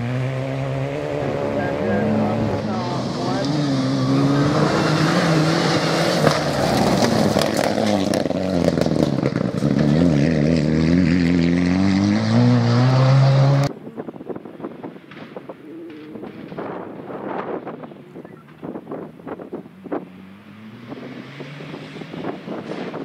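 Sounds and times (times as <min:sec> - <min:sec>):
rally car engine revving: 0:00.0 - 0:23.0
wind noise on microphone: 0:13.6 - 0:23.0.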